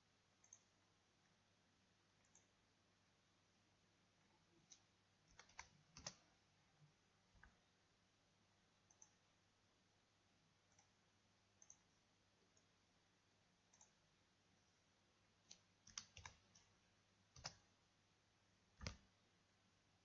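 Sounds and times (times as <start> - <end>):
mouse and keyboard clicks: 4.6 - 6.3, 8.9 - 9.2, 11.6 - 11.9, 15.5 - 16.7, 17.3 - 17.7, 18.8 - 19.0.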